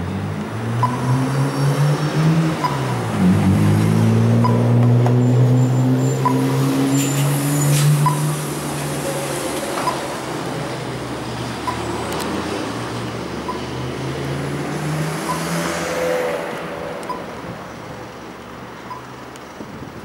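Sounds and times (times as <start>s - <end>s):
vehicle engines passing: 0.0s - 20.0s
crossing button locator ticks: 0.8s - 1.0s, 2.6s - 2.9s, 11.6s - 12.3s, 13.4s - 13.7s, 15.2s - 15.5s, 17.0s - 17.3s.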